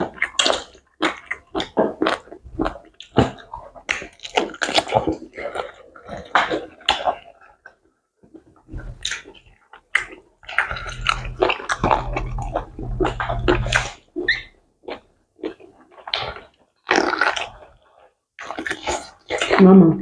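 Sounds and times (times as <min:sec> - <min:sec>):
wet eating mouth sounds: 0:00.0 - 0:20.0
low hum: 0:10.7 - 0:13.9.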